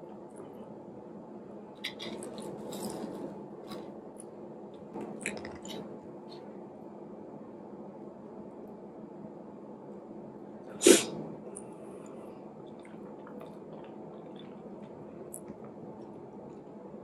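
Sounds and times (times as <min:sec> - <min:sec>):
person sneezing: 0:10.8 - 0:11.2.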